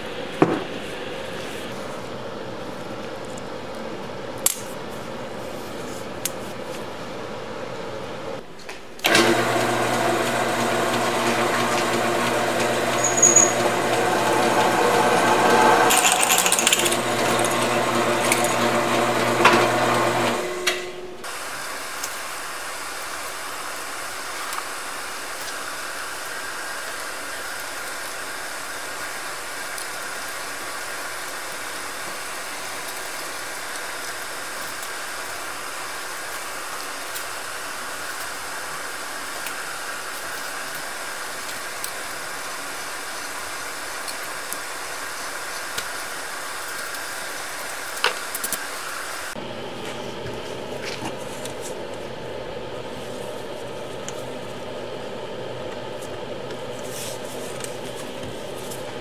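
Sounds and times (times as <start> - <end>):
drill press motor running: 9.0 - 21.2.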